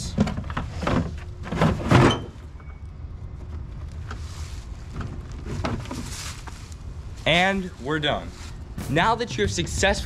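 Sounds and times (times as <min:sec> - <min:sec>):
plastic tube scraping and rustling: 0:03.9 - 0:06.8.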